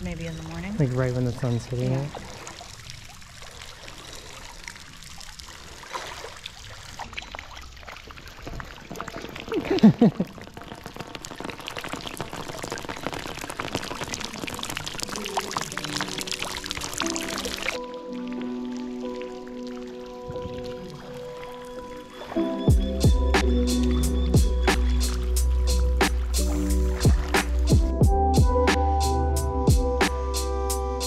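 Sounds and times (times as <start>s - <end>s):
waterfall splashing into pool: 4.8s - 17.8s.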